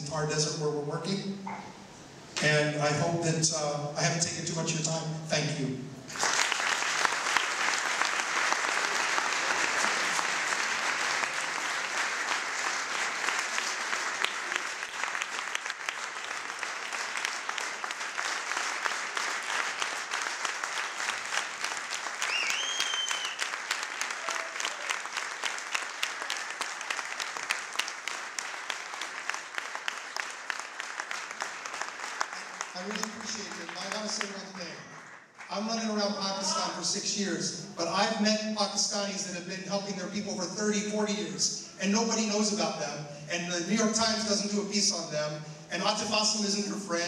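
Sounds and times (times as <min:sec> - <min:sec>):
audience applauding: 0:06.1 - 0:35.7.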